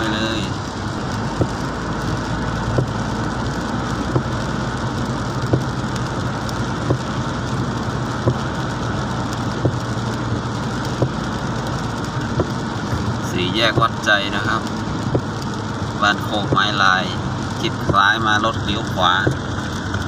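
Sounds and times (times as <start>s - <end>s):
car engine and road noise: 0.0s - 20.0s
rain and wet tyre hiss: 0.0s - 20.0s
windscreen wiper knocks: 1.2s - 1.8s, 2.6s - 3.1s, 4.1s - 4.4s, 5.4s - 5.8s, 6.8s - 7.1s, 8.2s - 8.6s, 9.5s - 10.0s, 10.8s - 11.3s, 12.2s - 12.7s, 13.7s - 14.0s, 15.0s - 15.4s, 19.2s - 19.7s.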